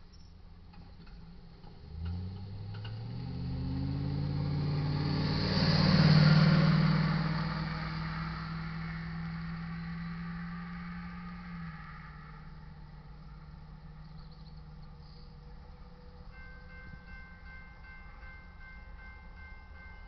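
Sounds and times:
truck engine accelerating: 0:00.6 - 0:16.3.

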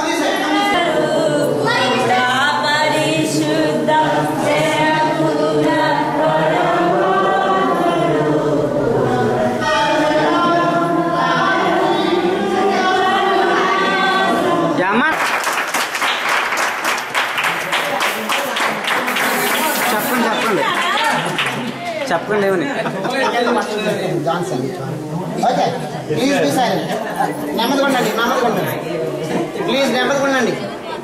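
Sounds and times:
congregation singing a hymn: 0:00.0 - 0:15.1.

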